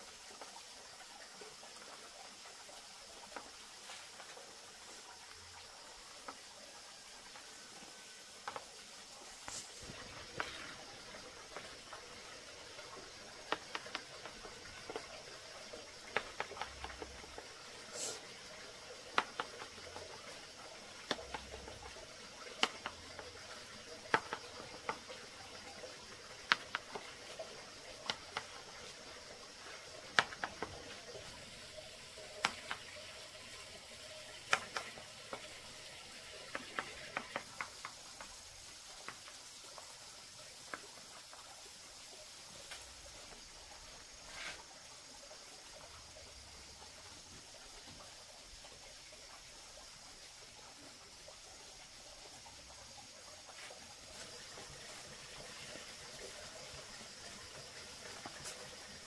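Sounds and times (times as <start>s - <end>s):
faint steady hiss: 0.0s - 59.0s
sharp clicks and light knocks: 34.4s - 35.6s.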